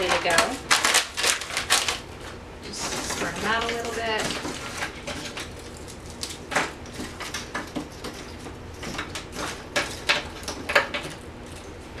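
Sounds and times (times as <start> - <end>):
frozen shrimp clicking on metal tray: 2.7 - 11.8.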